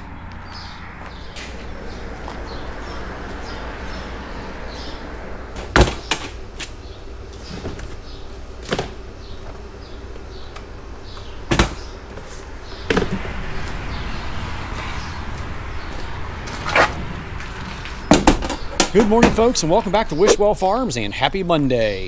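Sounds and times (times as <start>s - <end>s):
sharp knocks and bangs: 5.5s - 6.4s, 11.5s - 11.9s, 17.8s - 19.6s.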